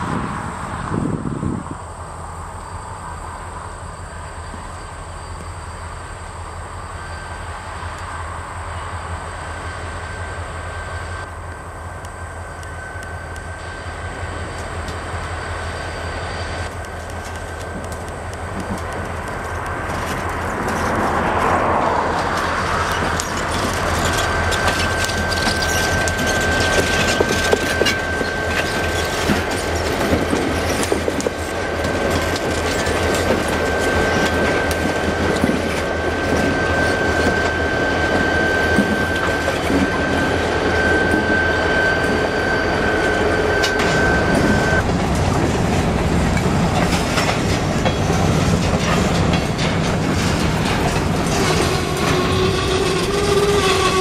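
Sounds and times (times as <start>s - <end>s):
high-pitched squeal: 0.0s - 44.9s, 47.2s - 54.0s
diesel locomotive engines: 0.0s - 54.0s
freight cars clickety-clack: 16.6s - 41.4s, 43.3s - 54.0s.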